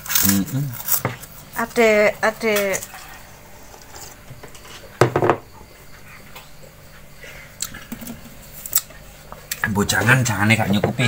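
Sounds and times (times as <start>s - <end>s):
knock: 5.0s - 5.5s.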